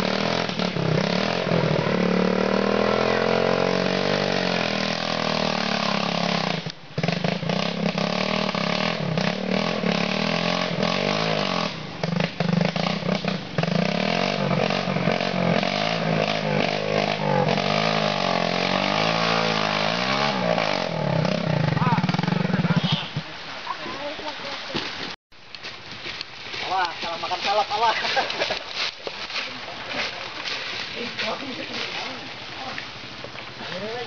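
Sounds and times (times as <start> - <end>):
dirt bike engine revving: 0.0 - 23.4.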